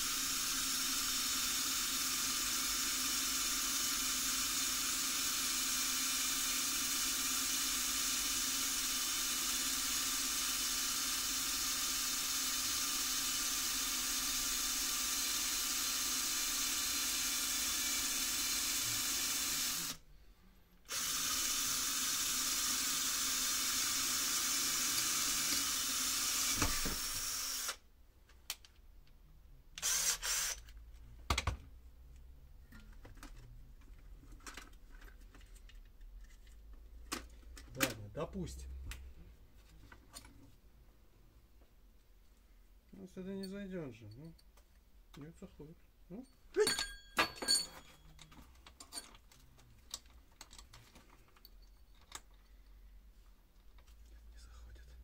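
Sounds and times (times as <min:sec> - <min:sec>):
small electric drill running: 0:00.0 - 0:20.0, 0:20.9 - 0:27.8, 0:29.8 - 0:30.7.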